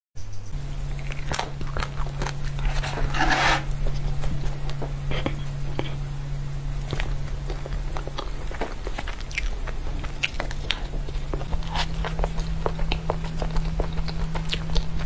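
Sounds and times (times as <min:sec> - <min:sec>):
steady low hum: 0:00.2 - 0:15.0
crunching chocolate topping: 0:06.8 - 0:15.0.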